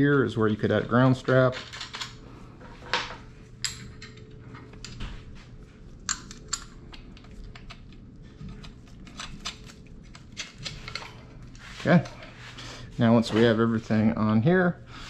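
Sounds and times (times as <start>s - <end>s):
faint steady hum: 0.0s - 15.0s
metal hardware clicking: 6.1s - 8.0s.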